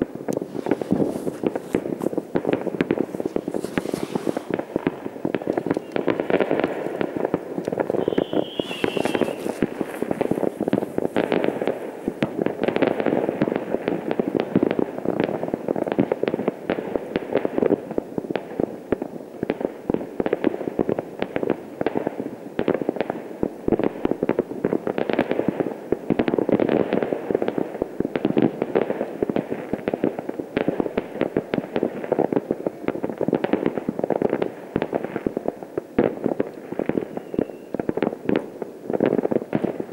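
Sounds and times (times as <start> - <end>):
fireworks crackling and banging: 0.0 - 39.9
firework whistle: 5.7 - 6.3, 7.8 - 11.0, 36.9 - 37.9.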